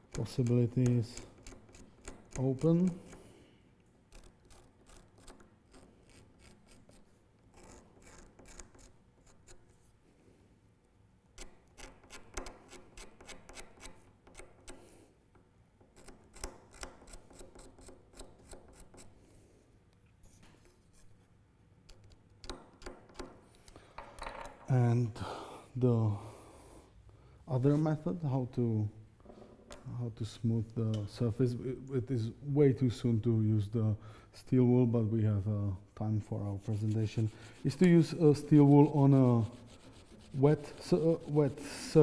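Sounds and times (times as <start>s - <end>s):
chisel scraping antler: 4.1s - 9.8s, 36.4s - 42.0s.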